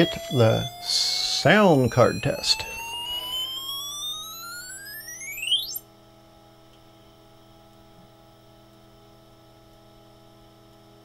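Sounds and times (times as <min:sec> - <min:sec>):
rising tone sweep: 0:00.0 - 0:05.8
computer low hum: 0:00.0 - 0:11.0.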